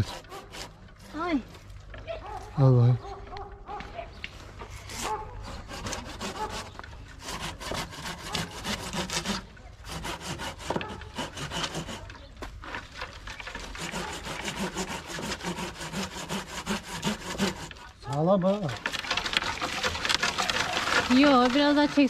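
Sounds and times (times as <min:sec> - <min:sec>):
pruning saw cutting tree trunk: 0:00.0 - 0:01.4, 0:04.7 - 0:12.3, 0:13.4 - 0:22.0.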